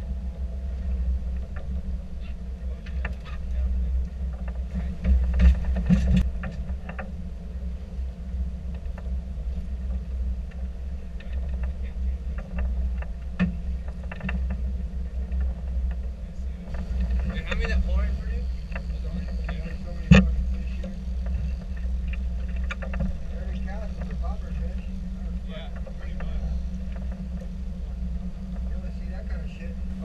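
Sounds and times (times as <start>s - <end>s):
boat engine rumbling: 0.0s - 30.0s.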